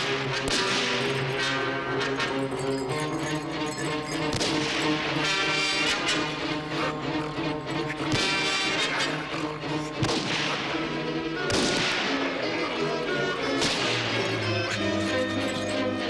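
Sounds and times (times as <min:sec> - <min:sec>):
orchestral film music: 0:00.0 - 0:16.0.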